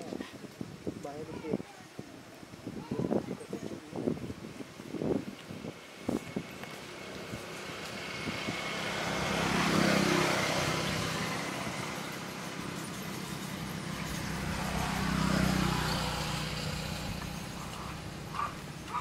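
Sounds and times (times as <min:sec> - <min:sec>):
vehicles passing: 0:03.9 - 0:19.0.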